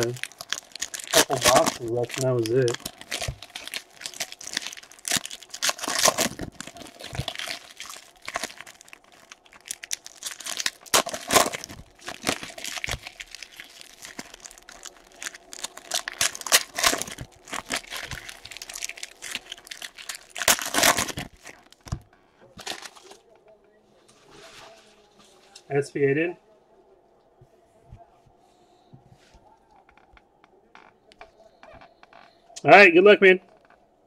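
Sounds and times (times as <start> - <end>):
plastic wrappers tearing and crinkling: 0.0 - 23.3.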